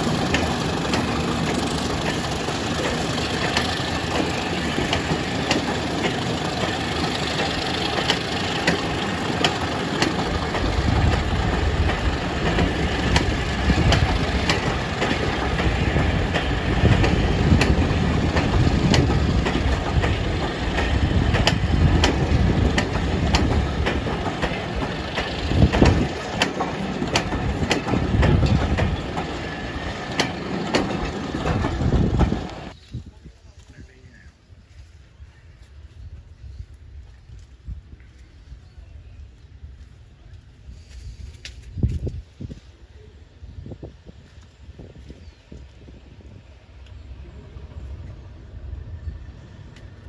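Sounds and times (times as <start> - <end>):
train wheels clicking over rail joints: 0.0 - 32.8
diesel engine rumble: 0.0 - 34.3.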